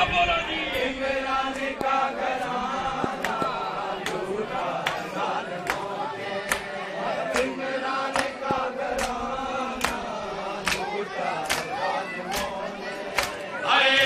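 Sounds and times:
men chanting a lament: 0:00.0 - 0:14.0
hands slapping bare chests: 0:01.6 - 0:06.7, 0:07.3 - 0:09.2, 0:09.8 - 0:13.5.

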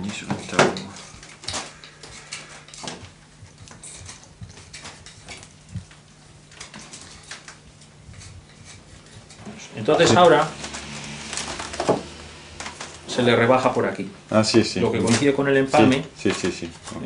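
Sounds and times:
wood lath scraping and clicking: 0:00.0 - 0:13.2
steady low hum: 0:00.0 - 0:16.9.

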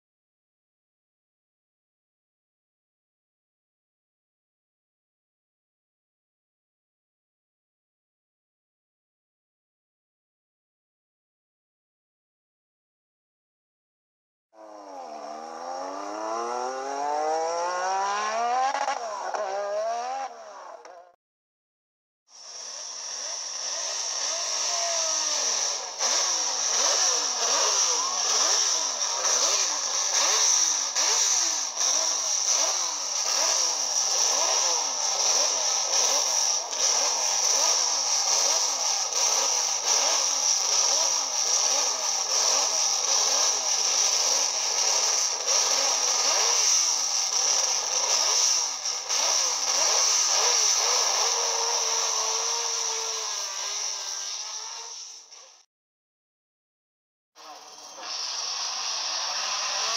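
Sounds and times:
racing car engine revving: 0:14.6 - 0:21.2, 0:22.6 - 0:55.6, 0:57.4 - 0:59.9.

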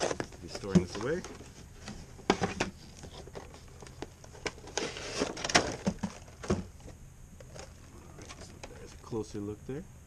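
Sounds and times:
plastic crackles and knocks: 0:00.0 - 0:09.0
faint handling noise: 0:00.0 - 0:09.2
plastic tray sliding out of cardboard box: 0:04.7 - 0:06.2.

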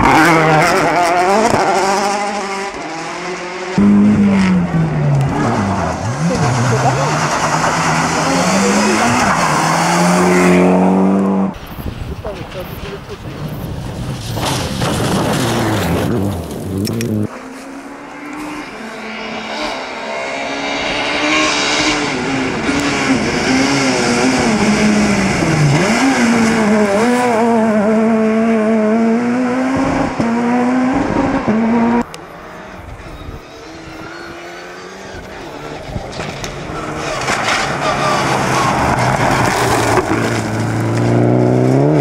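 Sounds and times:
quieter rally car approaching: 0:00.0 - 0:42.0
rally car engine revving: 0:00.0 - 0:42.0
rally car passing spraying gravel: 0:11.6 - 0:20.4, 0:35.4 - 0:42.0.

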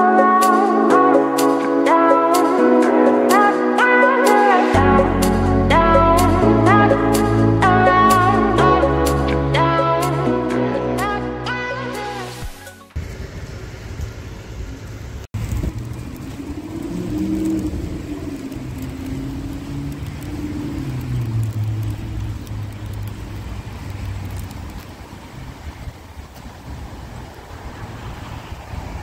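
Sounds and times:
low traffic rumble: 0:04.7 - 0:11.6, 0:13.0 - 0:29.0
vehicle engine passing by: 0:13.4 - 0:25.8.

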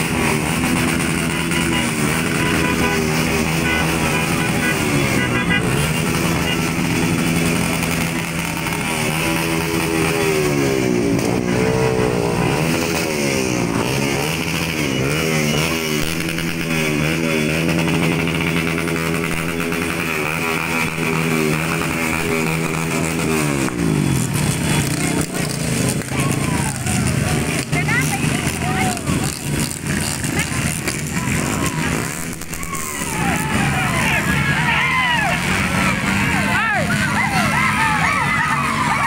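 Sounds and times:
motorcycle engines revving: 0:00.0 - 0:39.0.

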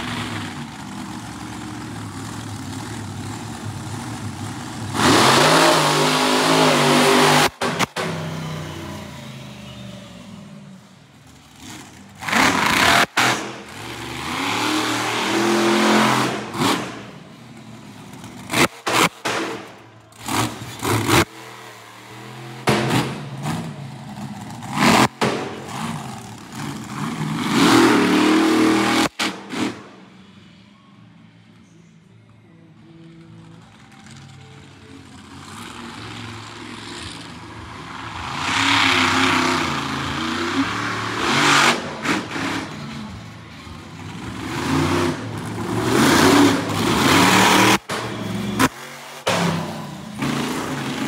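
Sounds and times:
truck engine revving: 0:00.0 - 0:30.2, 0:34.3 - 0:51.0.

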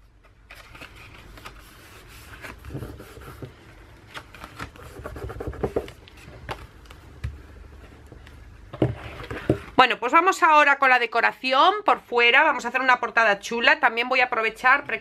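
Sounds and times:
paper pages rustling: 0:00.2 - 0:07.1.

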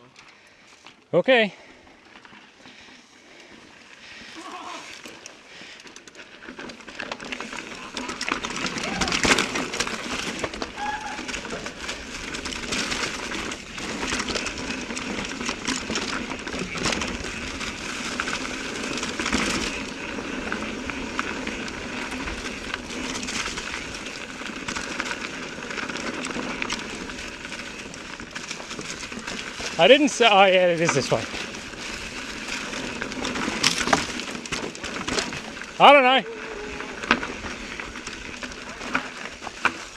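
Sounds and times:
bike chain and frame rattling: 0:01.5 - 0:39.9
tyres crunching over rock: 0:04.0 - 0:39.9.

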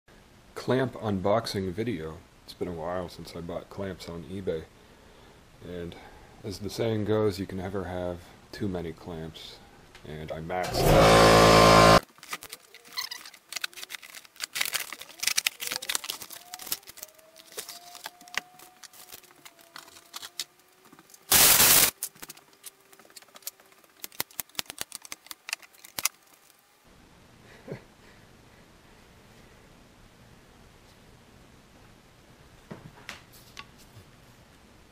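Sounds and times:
loud rasp: 0:10.7 - 0:12.0
metal clamp parts handled: 0:12.2 - 0:20.5.

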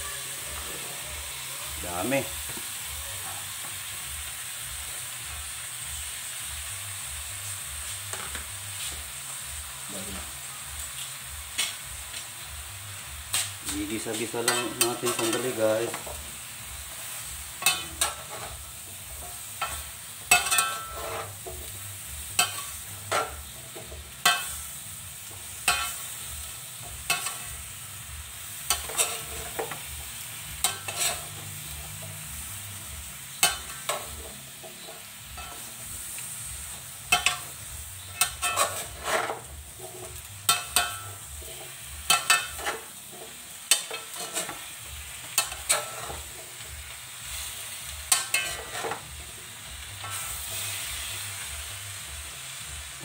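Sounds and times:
food sizzling in a pan: 0:00.0 - 0:53.0
spatula scraping a pan: 0:13.3 - 0:16.2, 0:17.0 - 0:27.7, 0:28.3 - 0:32.6, 0:33.3 - 0:51.7.

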